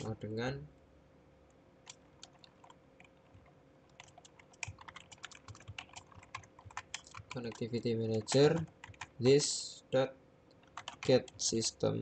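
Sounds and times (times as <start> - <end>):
computer keyboard typing: 1.8 - 9.2, 10.6 - 11.6.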